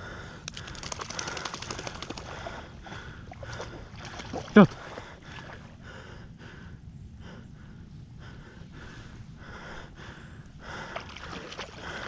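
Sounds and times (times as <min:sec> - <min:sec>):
footsteps splashing through water: 0:03.4 - 0:05.6, 0:11.0 - 0:11.8.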